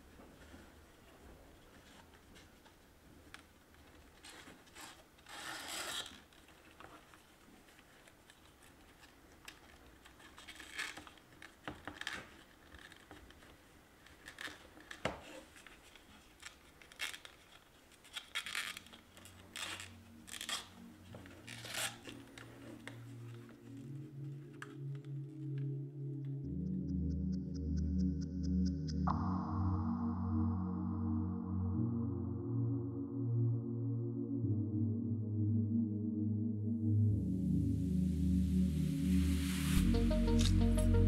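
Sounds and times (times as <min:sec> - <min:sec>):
soft music: 0:18.2 - 0:41.0.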